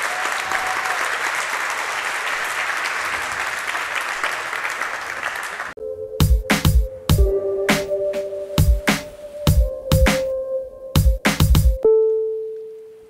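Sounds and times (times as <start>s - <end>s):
audience applauding: 0.0s - 5.8s
electronic music with heavy beats: 6.2s - 11.8s.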